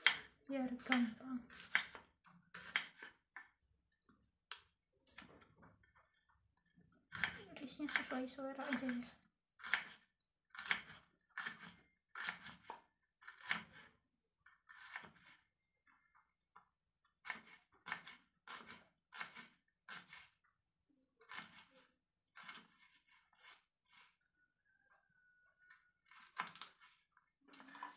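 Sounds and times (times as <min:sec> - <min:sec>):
knife cutting on wooden board: 0:00.0 - 0:03.2, 0:07.1 - 0:08.1, 0:09.6 - 0:13.9, 0:14.7 - 0:15.4, 0:17.2 - 0:20.4, 0:21.2 - 0:24.2, 0:26.0 - 0:27.0.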